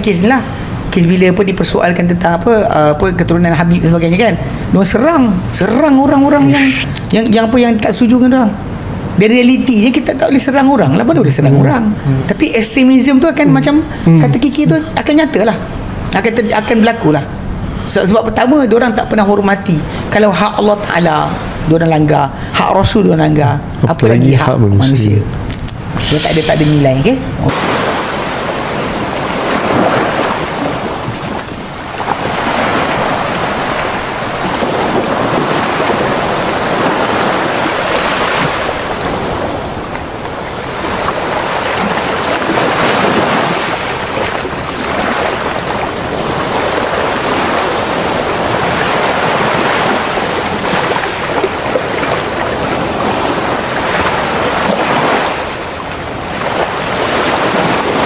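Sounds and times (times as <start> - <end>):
waves breaking on beach: 27.4 - 58.0.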